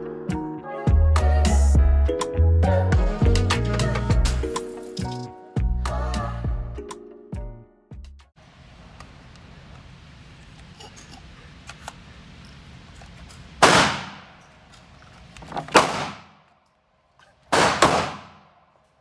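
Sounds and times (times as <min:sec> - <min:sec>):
loud gunshots with echo: 0:13.6 - 0:14.3, 0:15.7 - 0:16.4, 0:17.5 - 0:18.5.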